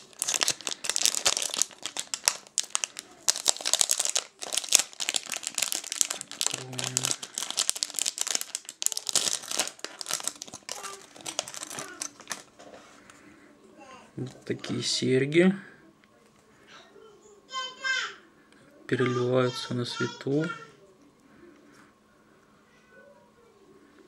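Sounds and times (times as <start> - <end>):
plastic packaging crinkling: 0.0 - 12.6.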